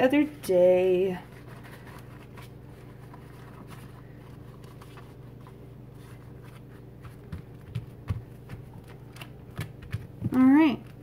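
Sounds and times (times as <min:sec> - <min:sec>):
steady low hum: 0:00.0 - 0:11.0
waxed cloth crinkling: 0:00.8 - 0:07.6.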